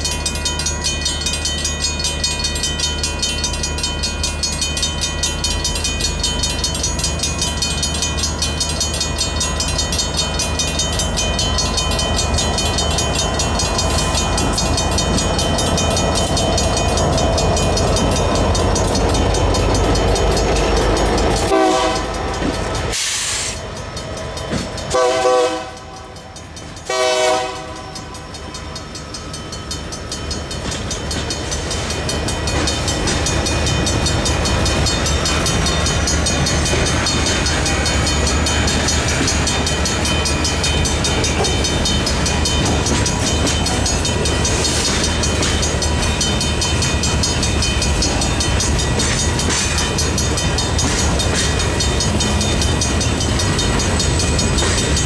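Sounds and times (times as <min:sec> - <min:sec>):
crossing bell ringing: 0:00.0 - 0:55.0
locomotive rumble: 0:00.0 - 0:55.0
train horn blasts: 0:21.5 - 0:22.3, 0:24.9 - 0:26.1, 0:26.9 - 0:28.0.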